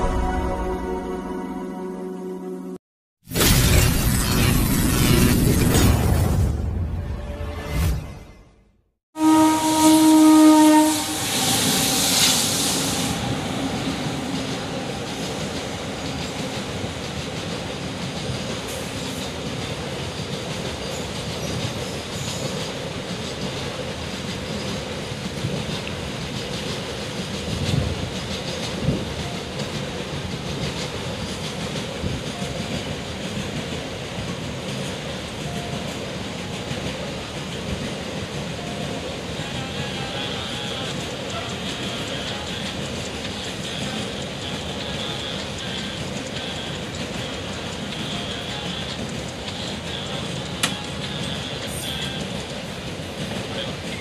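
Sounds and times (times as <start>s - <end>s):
train horn: 9.2s - 14.4s
freight train rumbling past: 9.2s - 54.0s.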